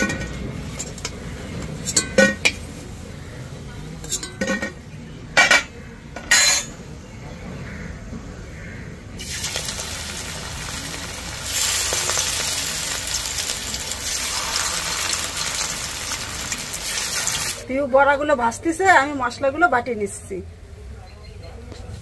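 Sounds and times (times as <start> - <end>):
oil sizzling in a pan: 9.2 - 17.6.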